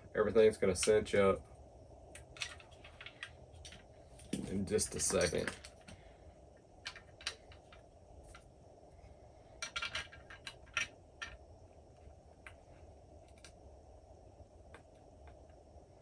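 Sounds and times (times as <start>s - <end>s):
clicks and clinks of metal parts: 4.9s - 6.0s.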